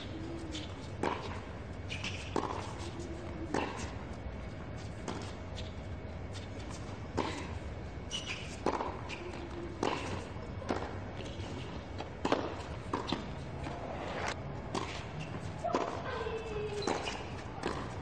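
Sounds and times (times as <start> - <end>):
shoe squeaks: 0.0 - 4.0, 4.7 - 7.4, 8.0 - 10.3, 11.2 - 11.9, 14.8 - 18.0
tennis balls bouncing on hard court: 0.0 - 4.0, 8.1 - 18.0
tennis balls struck by rackets: 0.0 - 4.0, 8.3 - 16.1, 16.8 - 18.0.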